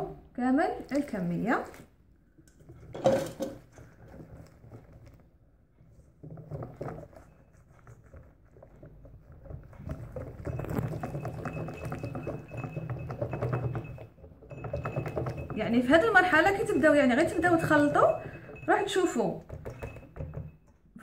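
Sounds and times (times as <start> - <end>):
whisk beating batter in bowl: 6.2 - 20.6.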